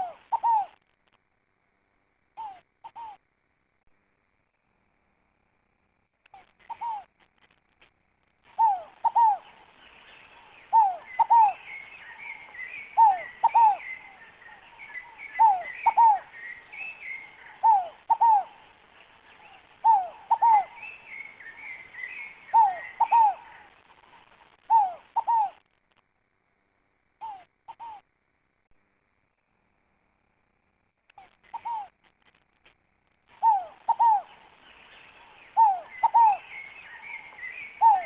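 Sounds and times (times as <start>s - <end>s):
dove cooing: 0.0s - 0.8s, 2.4s - 3.2s, 6.4s - 7.1s, 8.5s - 25.6s, 27.2s - 28.0s, 31.2s - 32.0s, 33.3s - 38.0s
small birds twittering: 0.0s - 0.8s, 8.4s - 25.6s, 27.2s - 28.0s, 31.1s - 32.4s, 33.3s - 38.0s.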